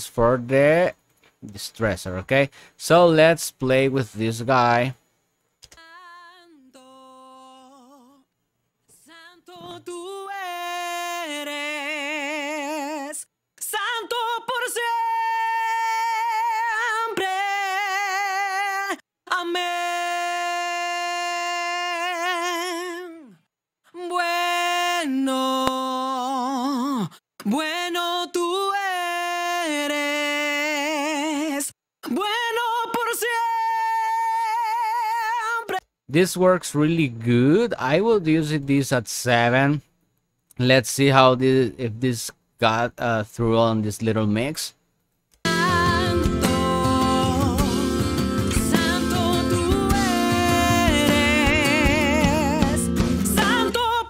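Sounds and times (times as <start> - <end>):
singer breathing: 2.5 - 2.8
solo vocal with vibrato: 5.7 - 8.3, 8.9 - 35.8, 45.5 - 54.0.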